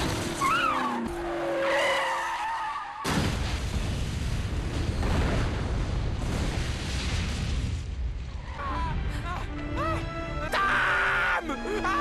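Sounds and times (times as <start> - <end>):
tyres squealing in a skid: 0.3 - 3.1
loud explosion: 3.1 - 8.4.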